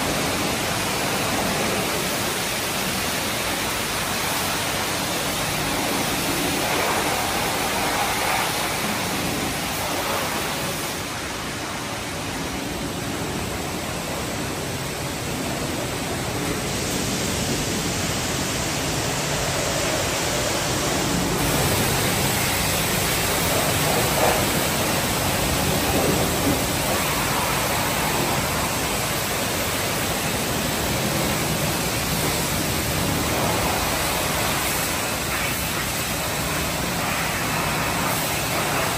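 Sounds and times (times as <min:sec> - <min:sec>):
high-pressure water spray hissing: 0:00.0 - 0:38.9.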